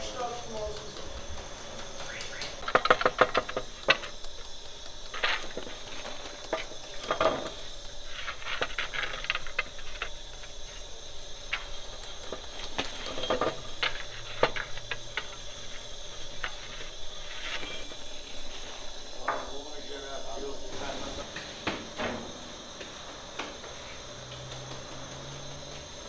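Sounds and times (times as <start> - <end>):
rod scraping hot pebbles: 0.0 - 21.5
steady hiss: 0.0 - 26.0.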